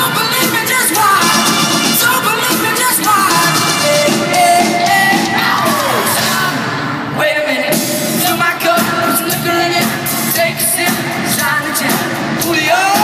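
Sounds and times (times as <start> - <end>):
live pop-rock band: 0.0 - 13.0
person singing: 0.0 - 13.0
fans screaming: 3.0 - 6.7.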